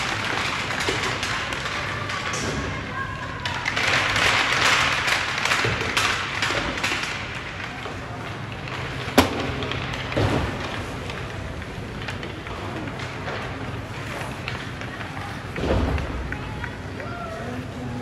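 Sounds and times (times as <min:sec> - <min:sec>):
skates scraping on ice: 0:00.0 - 0:18.0
voices: 0:01.2 - 0:05.6, 0:11.0 - 0:18.0
sharp crack: 0:03.8 - 0:16.3.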